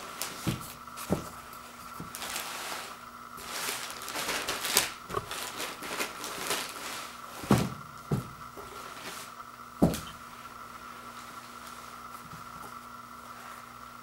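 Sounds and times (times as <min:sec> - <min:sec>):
plastic packaging crinkling: 0:02.0 - 0:07.7.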